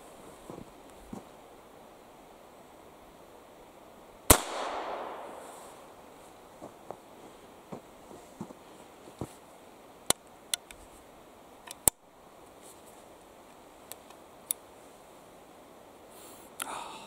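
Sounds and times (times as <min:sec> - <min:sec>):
rifle action metallic clicks: 0:11.7 - 0:12.0.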